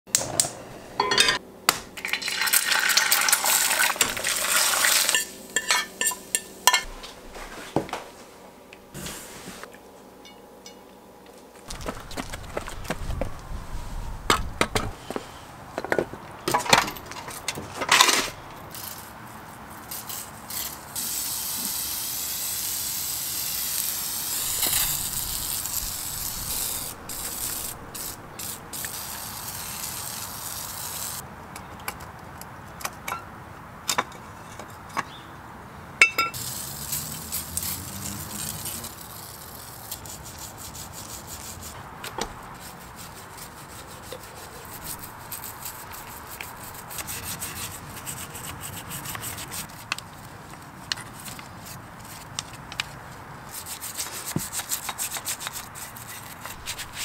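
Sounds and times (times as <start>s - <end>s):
metal clanks on concrete: 1.0s - 1.4s, 36.0s - 36.4s
spray cleaner hissing: 21.0s - 31.2s, 36.4s - 39.2s
stiff brush scrubbing metal: 24.2s - 31.2s, 36.4s - 49.9s, 53.5s - 57.0s.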